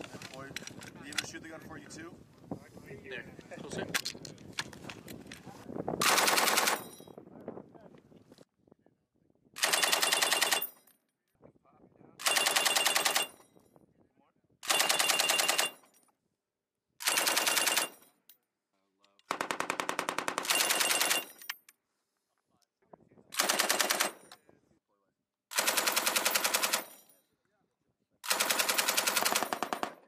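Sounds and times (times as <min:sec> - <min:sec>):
machine gun bursts: 0:06.0 - 0:06.8, 0:09.6 - 0:10.7, 0:12.2 - 0:13.3, 0:14.6 - 0:15.8, 0:17.0 - 0:18.0, 0:19.3 - 0:21.4, 0:23.4 - 0:24.2, 0:25.5 - 0:26.9, 0:28.2 - 0:30.0.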